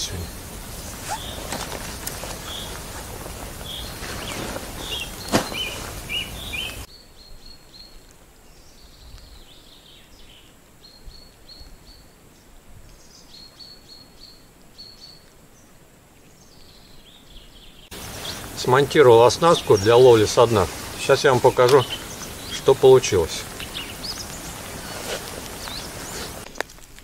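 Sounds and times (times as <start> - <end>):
small birds chirping: 0.0 - 26.5
steady outdoor noise: 0.0 - 27.0.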